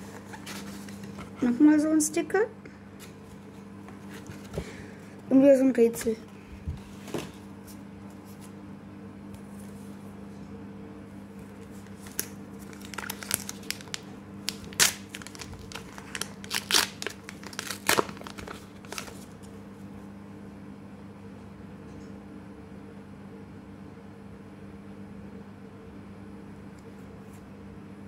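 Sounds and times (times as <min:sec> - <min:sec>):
steady low hum: 0:00.0 - 0:28.0
wrapper crinkling and tearing: 0:11.6 - 0:19.4.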